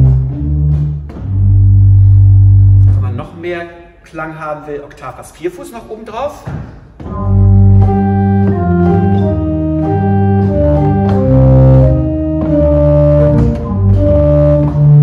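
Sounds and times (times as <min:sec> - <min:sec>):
pipe organ bass notes: 0:00.0 - 0:03.3, 0:07.0 - 0:15.0.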